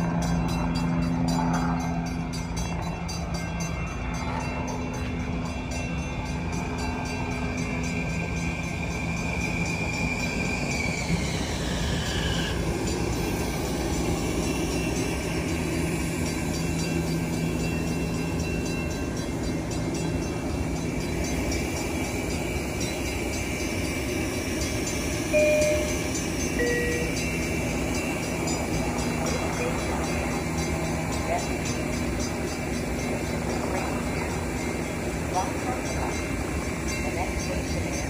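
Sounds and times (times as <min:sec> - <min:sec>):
electric train motors whining: 0:00.0 - 0:38.0
train humming: 0:00.0 - 0:38.0
two-note door chime: 0:25.4 - 0:27.2.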